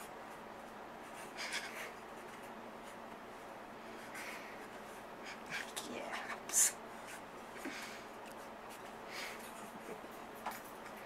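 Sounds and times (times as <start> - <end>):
faint whispering: 5.3 - 6.8.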